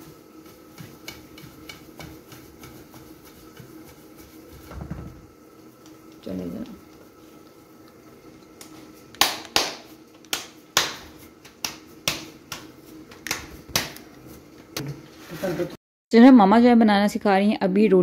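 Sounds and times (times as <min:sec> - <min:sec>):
hands slapping dough: 0:00.0 - 0:04.7, 0:08.5 - 0:14.8.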